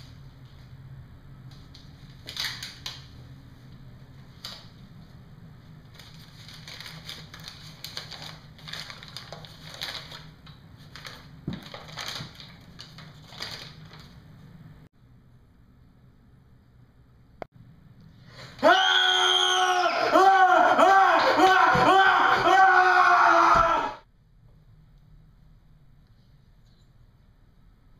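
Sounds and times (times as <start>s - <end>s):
paper crinkling: 5.9s - 14.3s.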